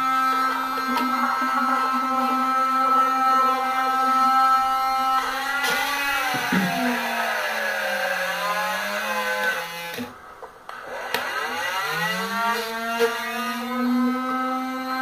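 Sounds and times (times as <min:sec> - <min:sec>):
small motor whining: 0:00.0 - 0:15.0.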